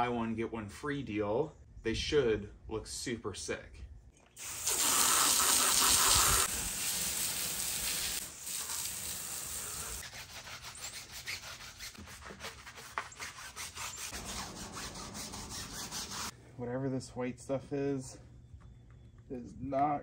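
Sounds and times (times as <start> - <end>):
water jet spraying hard: 4.4 - 10.0
brush scrubbing wet wheel: 4.4 - 16.3.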